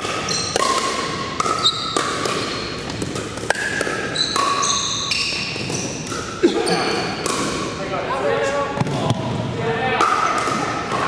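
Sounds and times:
sneakers squeaking on gym floor: 0.0 - 7.6.

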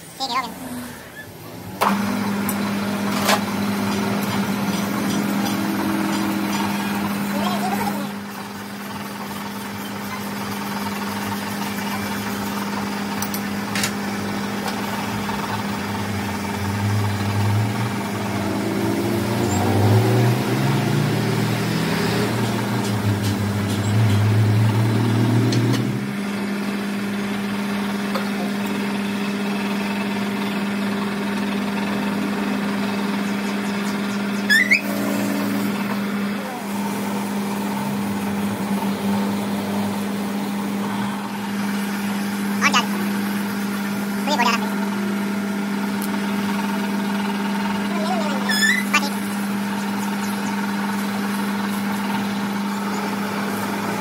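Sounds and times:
engine running: 0.0 - 54.0
sharp squeak: 34.4 - 35.0, 48.4 - 49.0.

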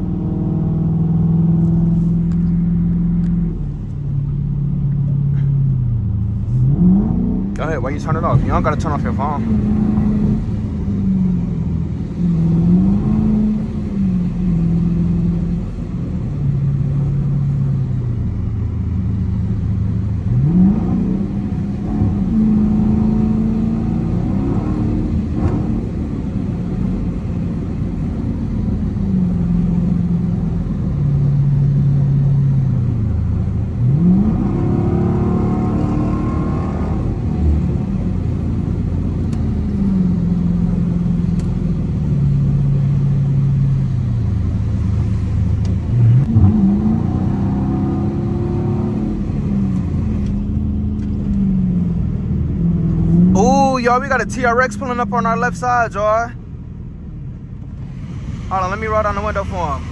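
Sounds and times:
car engine revving: 0.0 - 59.9
engine shifting up: 0.0 - 59.9
tyre and road noise on wet road: 0.0 - 59.9.

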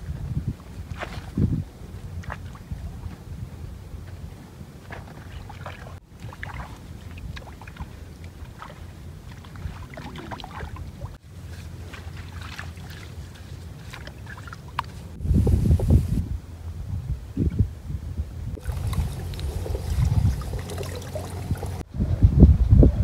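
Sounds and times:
hands splashing in muddy water: 4.8 - 15.2, 18.6 - 21.8
steady low rumble: 15.1 - 23.0.

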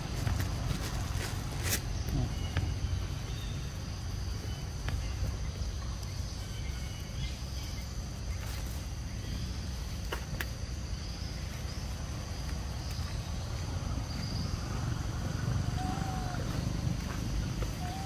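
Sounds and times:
high insect drone: 0.0 - 18.0.

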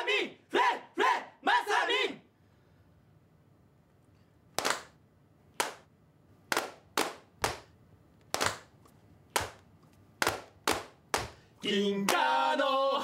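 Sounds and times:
sharp hand claps: 4.6 - 5.0, 5.6 - 5.9, 6.5 - 11.4.

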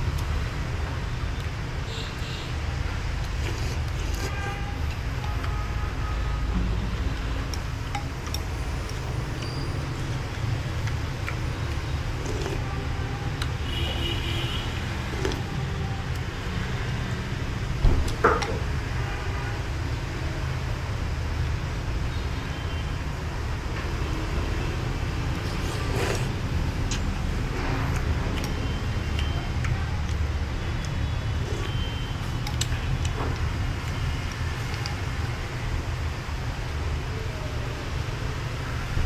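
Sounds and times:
background traffic rumble: 0.0 - 39.0
person sipping broth: 3.2 - 5.0, 12.0 - 12.8, 15.0 - 15.5, 25.2 - 27.1, 31.4 - 32.6.

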